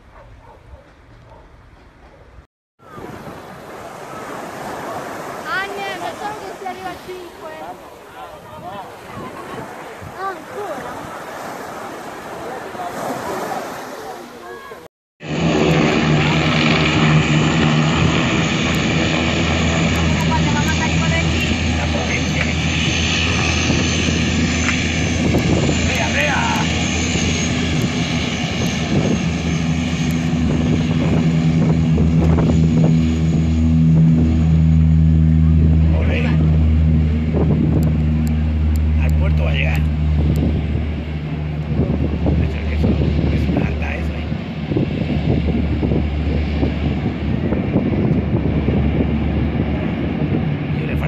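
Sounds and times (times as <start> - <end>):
wind buffeting microphone: 0.2 - 12.6, 15.4 - 51.0
turboprop engines droning: 15.2 - 51.0.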